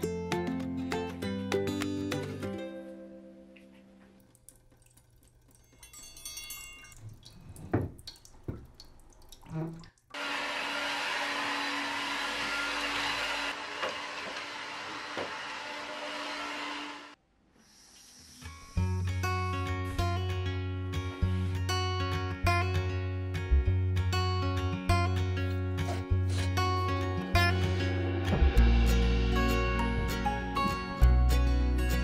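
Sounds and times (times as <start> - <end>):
stick vacuum cleaner running: 10.2 - 17.2.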